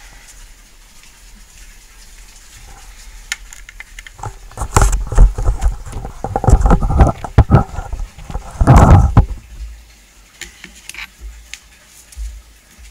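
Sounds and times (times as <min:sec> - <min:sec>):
microphone handling noise: 0:04.2 - 0:09.6.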